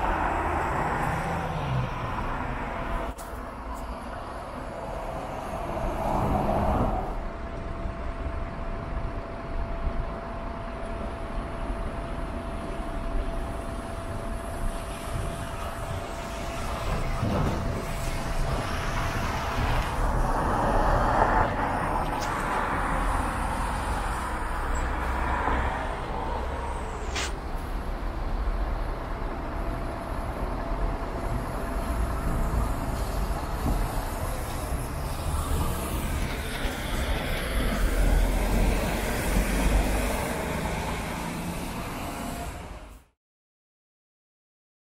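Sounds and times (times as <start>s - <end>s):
buses pulling away: 0.0s - 10.2s, 11.0s - 43.1s
road traffic: 0.0s - 43.2s.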